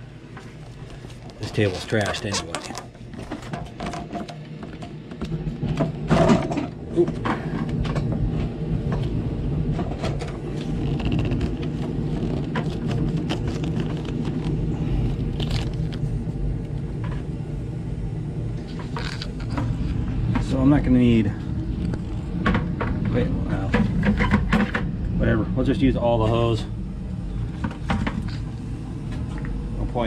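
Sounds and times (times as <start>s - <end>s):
low mechanical hum: 0.0s - 30.0s
plastic bag rustling: 0.5s - 3.4s, 10.6s - 16.2s.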